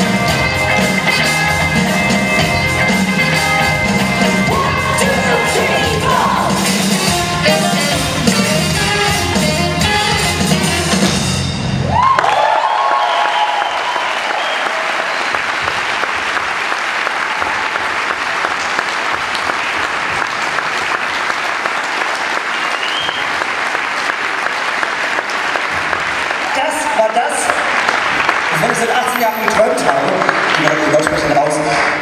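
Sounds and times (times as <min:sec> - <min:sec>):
live band music: 0:00.0 - 0:12.1, 0:26.6 - 0:32.0
person whooping: 0:11.9 - 0:15.0
audience applauding: 0:11.9 - 0:32.0
person whistling: 0:22.8 - 0:23.3.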